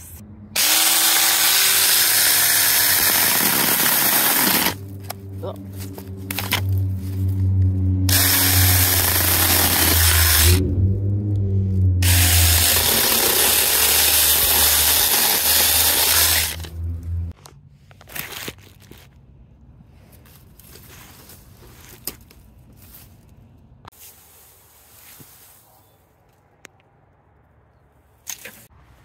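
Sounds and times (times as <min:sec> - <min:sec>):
chainsaw cutting through bamboo: 0:00.6 - 0:04.8, 0:08.0 - 0:10.6, 0:12.0 - 0:16.7
electric chainsaw motor hum: 0:00.6 - 0:04.8, 0:08.0 - 0:10.6, 0:12.0 - 0:16.8.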